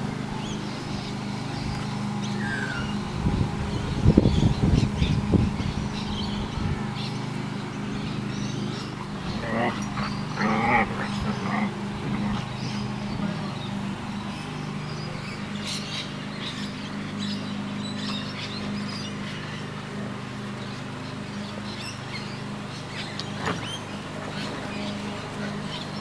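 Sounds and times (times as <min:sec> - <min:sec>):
birds chirping: 0:00.0 - 0:26.0
steady low hum: 0:00.0 - 0:26.0
puppies vocalizing: 0:04.3 - 0:19.6.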